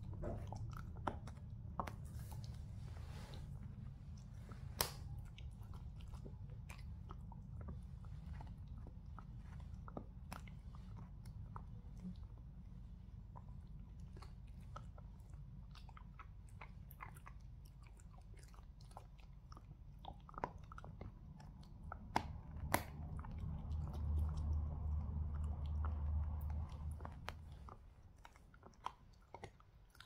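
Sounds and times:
dog gnawing a chew: 0.0s - 30.0s
low rumble: 21.7s - 27.9s.

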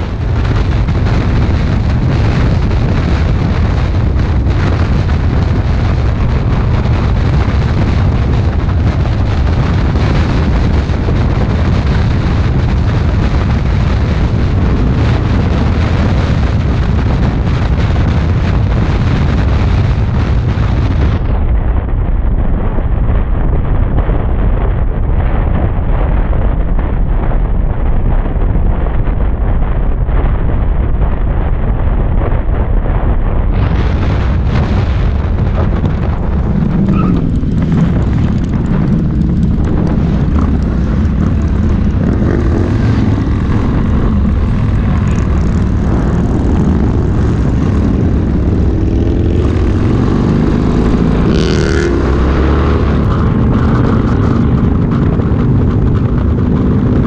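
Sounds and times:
motorcycle engines droning: 0.0s - 21.2s, 33.6s - 57.0s
wind buffeting a camera: 0.0s - 57.0s.

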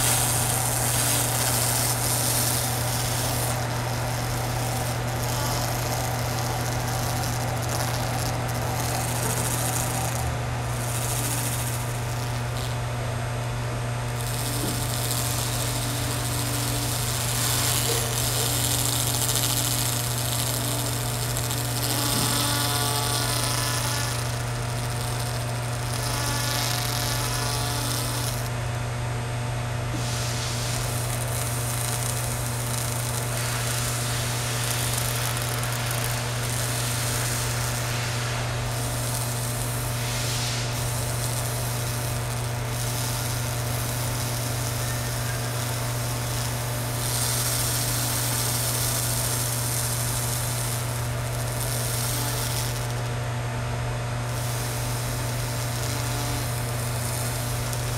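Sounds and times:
laser cleaner low hum: 0.0s - 57.9s
hiss of rust blasting: 29.9s - 52.8s.

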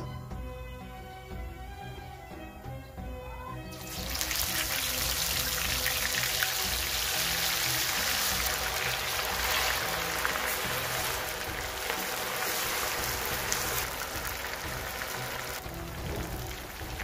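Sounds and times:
oil sizzling and bubbling: 3.7s - 17.0s.

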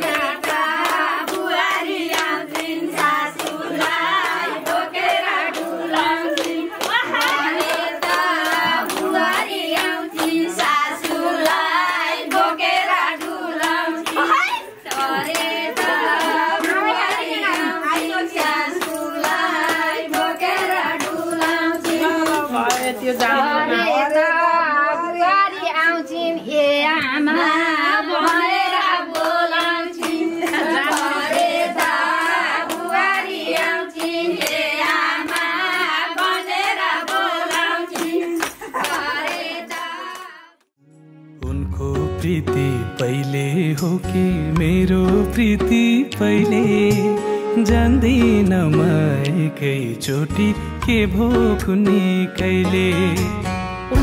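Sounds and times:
sharp regular clapping: 0.0s - 23.4s
person singing: 12.6s - 25.1s, 41.4s - 54.0s.

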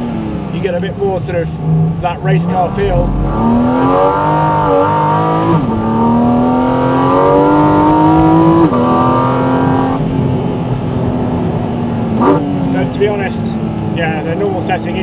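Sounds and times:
car engine revving hard: 0.0s - 10.2s, 12.0s - 13.2s.

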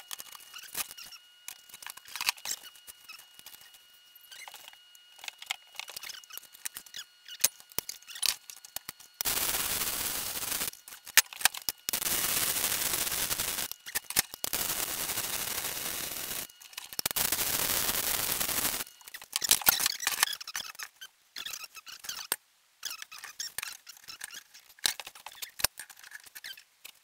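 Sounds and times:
arc welding crackle: 0.0s - 20.5s.

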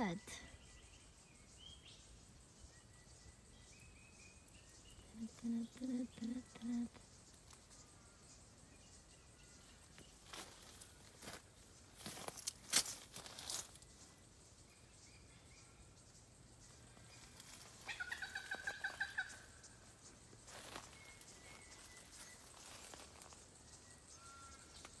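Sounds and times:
bird calling: 17.2s - 19.8s.

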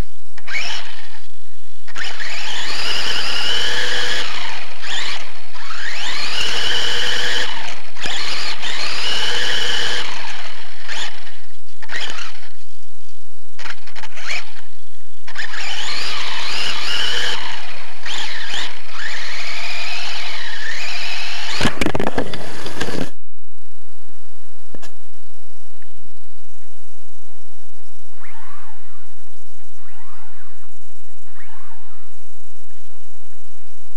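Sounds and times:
rc car motor whining: 0.4s - 1.3s, 1.9s - 12.6s, 13.6s - 23.1s, 28.2s - 29.0s
loud rough clattering: 21.5s - 23.2s.

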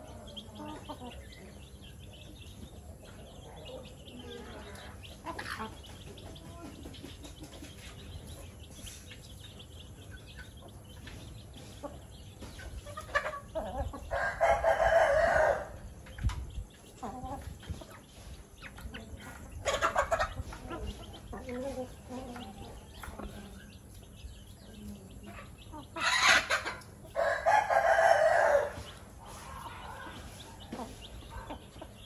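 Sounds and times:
chickens clucking: 0.0s - 32.0s
rooster crowing: 27.2s - 28.8s.

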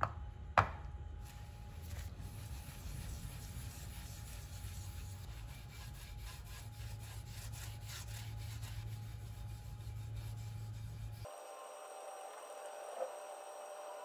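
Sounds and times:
steady low hum: 0.0s - 14.0s
cloth rag rubbing on wood: 1.2s - 11.3s.

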